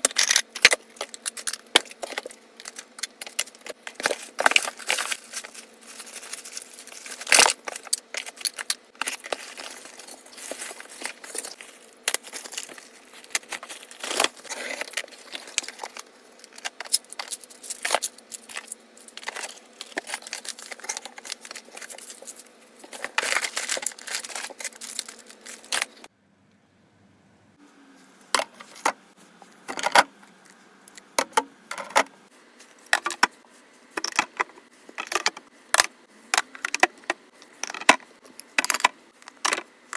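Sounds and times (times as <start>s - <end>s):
packaging crinkling and rustling: 0.1s - 26.1s.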